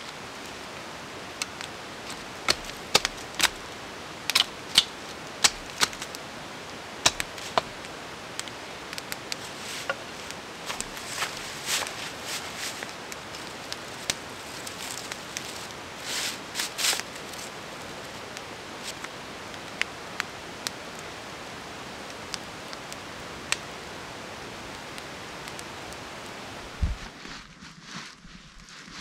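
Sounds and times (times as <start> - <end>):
campfire crackling and popping: 0.0 - 27.1
rustling: 9.0 - 17.6, 26.7 - 29.0.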